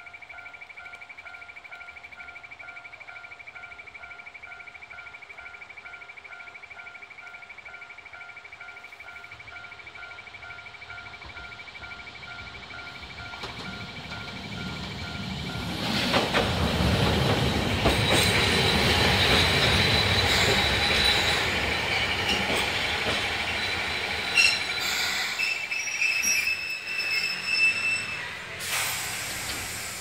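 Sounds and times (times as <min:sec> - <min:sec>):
tram clicks: 0:00.0 - 0:30.0
tram wheels rumbling on rails: 0:00.0 - 0:30.0
high-pitched wheel squeal: 0:23.1 - 0:30.0.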